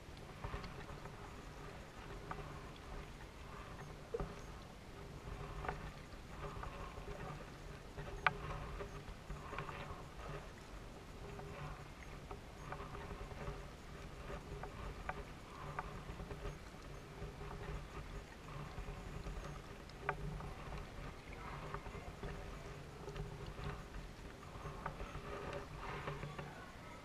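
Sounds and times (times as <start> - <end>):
paddle swishing through water: 0.0 - 27.0.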